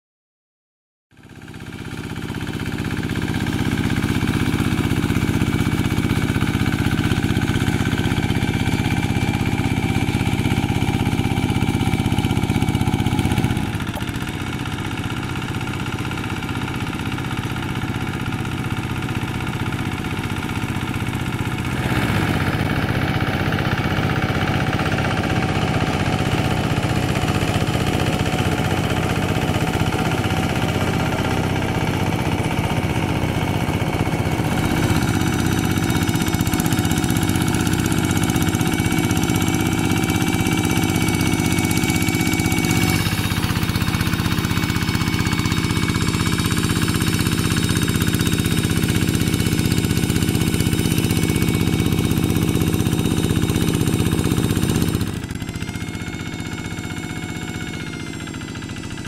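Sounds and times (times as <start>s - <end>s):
wheels churning through mud and water: 1.2s - 57.5s, 58.1s - 59.0s
diesel engine running: 1.2s - 59.0s.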